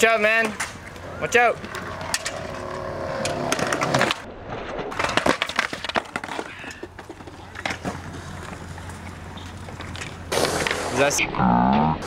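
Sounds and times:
skateboard clattering on concrete: 4.9 - 11.0.

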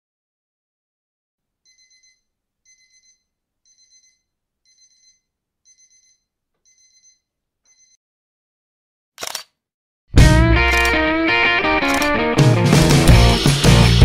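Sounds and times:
alarm clock beeping: 1.7 - 8.0.

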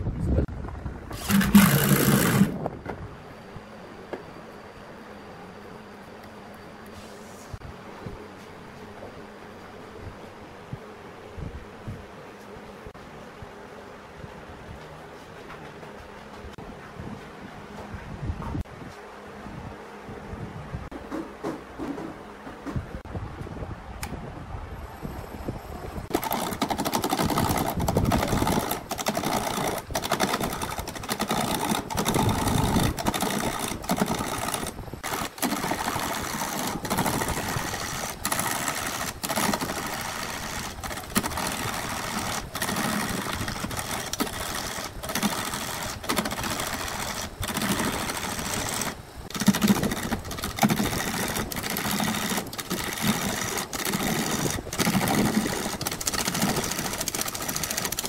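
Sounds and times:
wood lathe gouge chatter: 1.2 - 2.6, 26.1 - 58.0.

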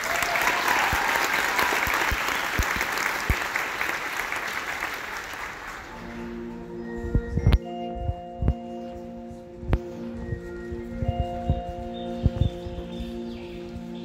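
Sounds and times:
audience applause: 0.0 - 6.2.

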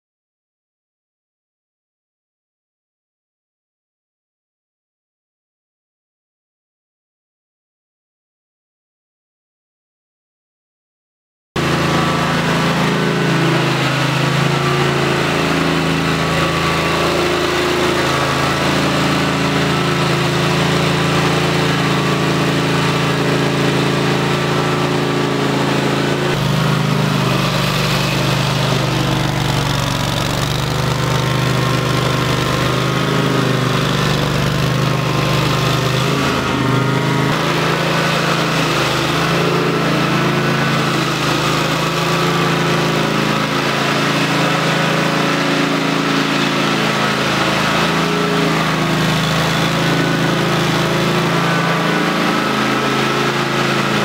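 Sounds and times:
floor grinder engine running: 11.6 - 54.0
grinding glue off concrete: 11.6 - 54.0.

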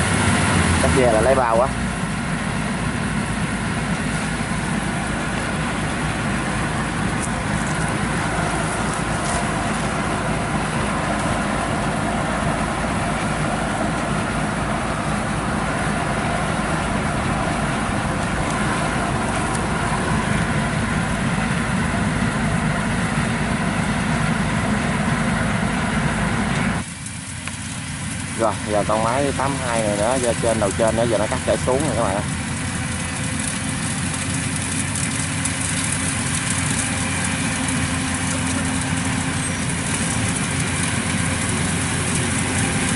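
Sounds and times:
harvester diesel engine and machinery: 0.0 - 42.9.

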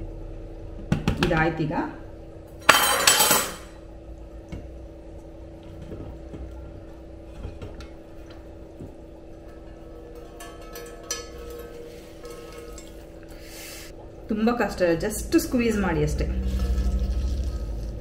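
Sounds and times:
metal vessels clattering: 2.6 - 3.8, 5.7 - 14.1
metal vessels clinking: 2.6 - 3.8, 5.9 - 14.1.

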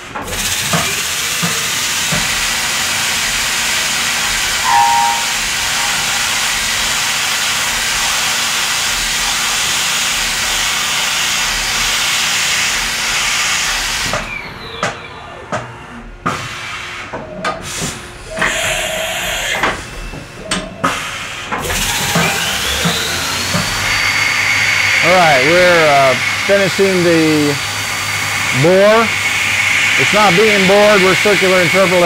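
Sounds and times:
drill squeal: 4.0 - 8.5, 21.6 - 32.0.

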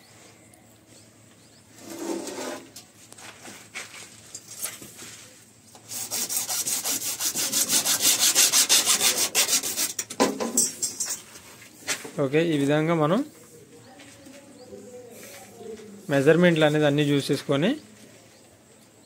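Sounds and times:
handling and rubbing of pipe: 1.8 - 12.1
hand saw cutting plastic pipe: 5.8 - 10.2.

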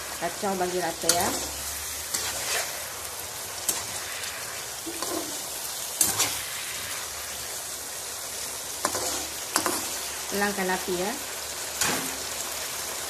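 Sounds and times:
chicken sizzling in a wok: 0.0 - 13.0
metal spatula scraping a pan: 0.9 - 3.0, 3.6 - 7.4, 8.8 - 10.1.

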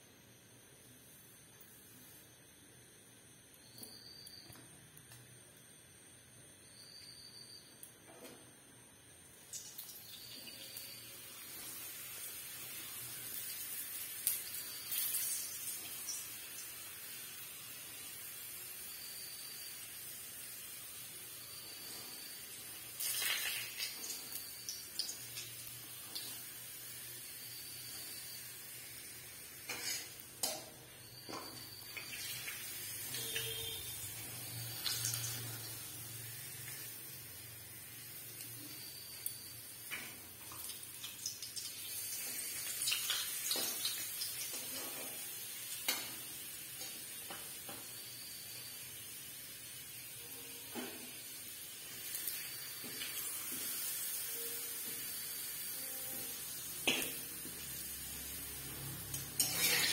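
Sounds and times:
food sizzling in oil: 9.3 - 59.9
metal spatula scraping a pan: 29.6 - 30.2, 59.4 - 59.9.

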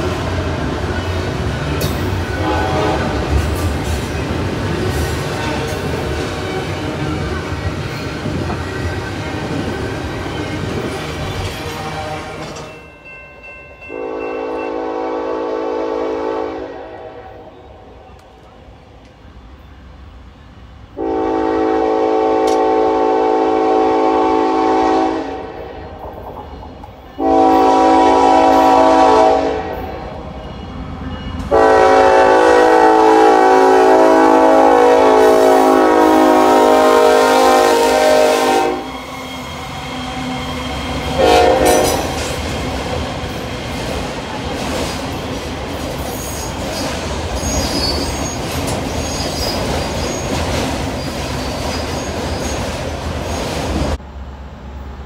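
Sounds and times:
train rumbling past: 0.0 - 55.0
train air horn blasts: 2.2 - 3.5, 11.6 - 12.6, 13.9 - 18.0, 21.0 - 26.0, 27.2 - 30.0, 31.4 - 39.2, 41.1 - 42.2.

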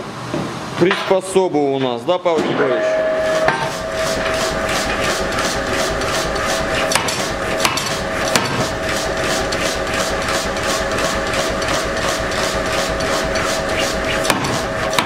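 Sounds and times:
steady machine hum: 0.0 - 15.0
forging hammer striking steel: 2.5 - 5.5, 6.9 - 8.6.

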